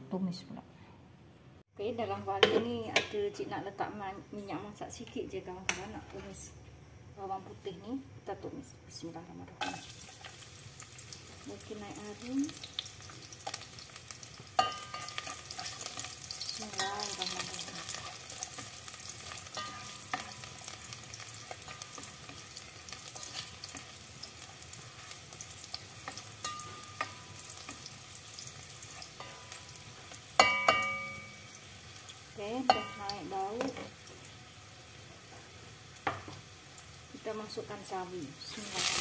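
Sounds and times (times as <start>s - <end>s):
garlic sizzling in oil: 9.3s - 39.0s.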